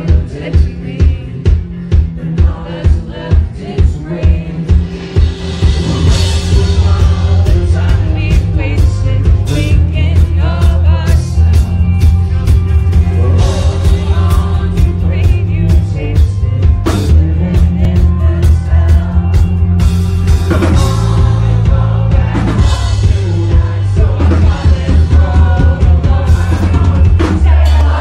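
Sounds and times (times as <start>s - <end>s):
rock band playing: 0.0s - 28.0s
person singing: 5.6s - 19.8s, 20.5s - 28.0s.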